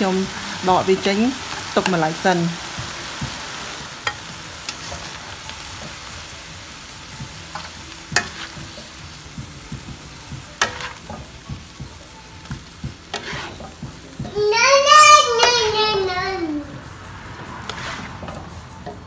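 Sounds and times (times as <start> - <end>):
vegetables sizzling in frying pan: 0.0 - 19.0
spatula clacking against pan: 7.2 - 14.4.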